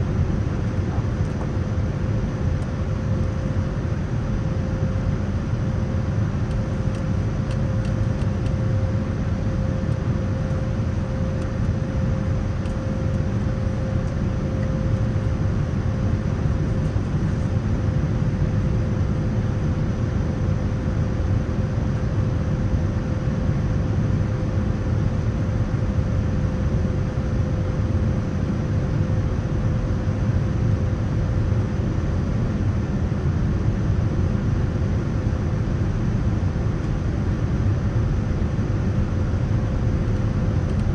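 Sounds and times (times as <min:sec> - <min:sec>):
airliner low rumble: 0:00.0 - 0:40.9
thin steady whine: 0:00.0 - 0:40.9.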